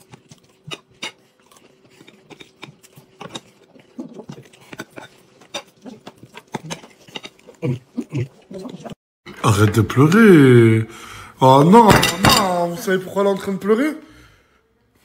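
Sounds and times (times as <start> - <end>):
chewing and lip-smacking: 0.0 - 9.0.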